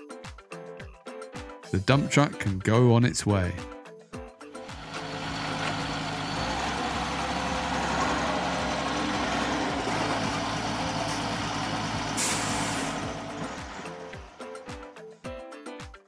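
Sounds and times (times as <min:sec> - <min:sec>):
heavy truck engine driving off: 0:04.6 - 0:15.0
air brake hiss: 0:12.1 - 0:13.1.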